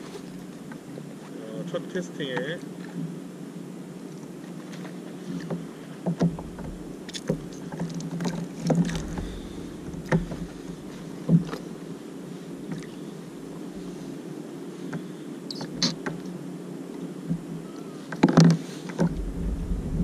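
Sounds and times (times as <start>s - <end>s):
low rumble: 8.8s - 11.0s, 19.0s - 20.0s.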